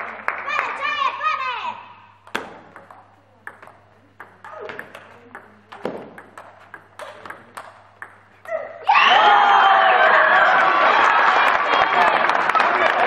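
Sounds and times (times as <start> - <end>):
table tennis ball clicks: 2.2 - 8.6.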